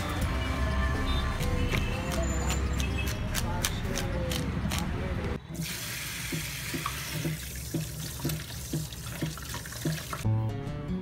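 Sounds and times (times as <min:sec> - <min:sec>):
tap water splashing: 0:06.2 - 0:10.2.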